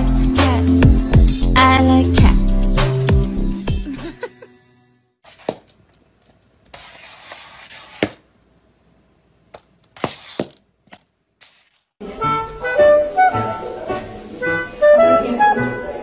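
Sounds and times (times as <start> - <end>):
plastic collar scraping tiled floor: 5.2 - 8.2, 9.9 - 11.9.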